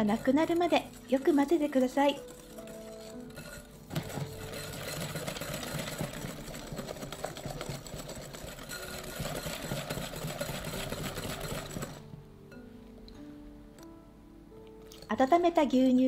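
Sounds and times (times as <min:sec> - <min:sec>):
whisk scraping glass bowl: 0:00.0 - 0:12.0.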